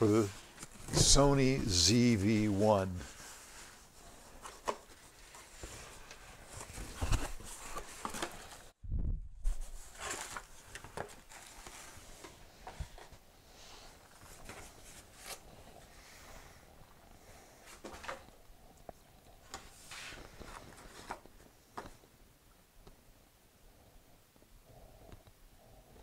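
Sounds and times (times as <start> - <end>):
cardboard flaps rustling and scraping: 3.0 - 8.7, 9.4 - 13.2.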